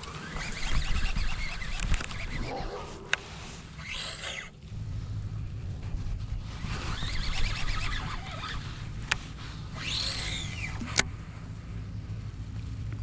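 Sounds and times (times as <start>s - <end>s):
sharp click of reel: 0.0s - 4.5s, 7.0s - 9.2s, 9.8s - 11.1s
fishing reel whirring: 0.0s - 4.6s, 6.6s - 11.1s.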